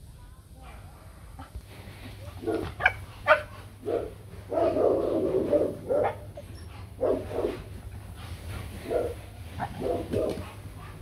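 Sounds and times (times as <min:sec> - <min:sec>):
dog barks: 0:02.3 - 0:06.4, 0:07.0 - 0:07.7, 0:08.8 - 0:10.6
dogs squabbling: 0:04.8 - 0:11.0.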